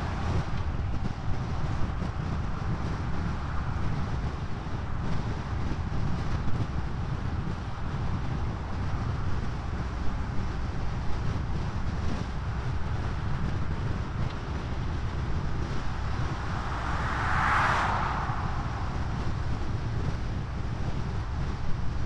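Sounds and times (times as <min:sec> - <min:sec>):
vehicle rumble on paved road: 0:00.0 - 0:22.0
wind noise: 0:00.0 - 0:22.0
passing car whoosh: 0:13.2 - 0:21.9.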